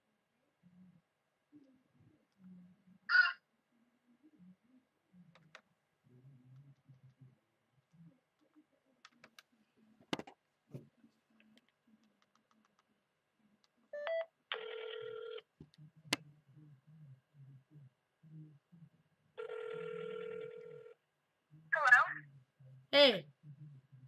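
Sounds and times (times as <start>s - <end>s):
phone ringback tone: 14.0s - 15.4s, 19.4s - 20.9s.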